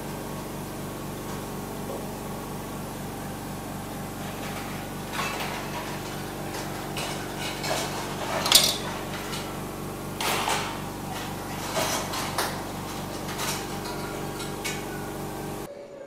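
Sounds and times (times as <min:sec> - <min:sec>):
steady low hum: 0:00.0 - 0:16.0
metal kitchenware clinking: 0:04.2 - 0:15.7.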